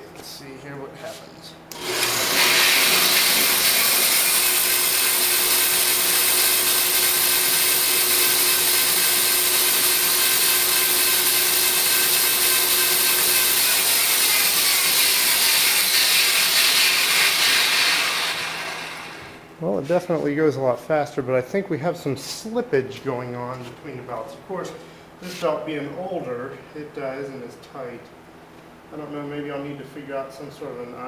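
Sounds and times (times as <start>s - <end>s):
bandsaw motor running: 1.7s - 19.5s.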